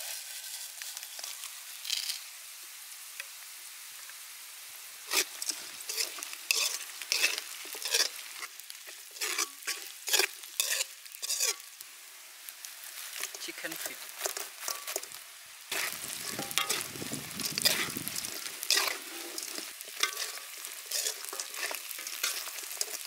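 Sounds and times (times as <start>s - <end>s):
spices sizzling in oil: 0.0s - 23.0s
metal ladle scraping a wok: 5.1s - 11.8s, 12.9s - 23.0s.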